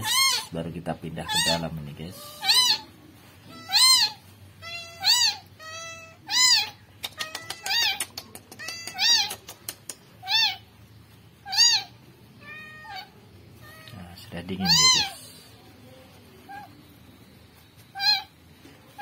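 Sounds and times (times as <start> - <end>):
kitten meowing: 0.0 - 0.5, 1.2 - 2.9, 3.5 - 9.5, 10.2 - 10.7, 11.4 - 14.0, 14.6 - 15.4, 17.9 - 18.4
faint clicks: 7.0 - 10.1.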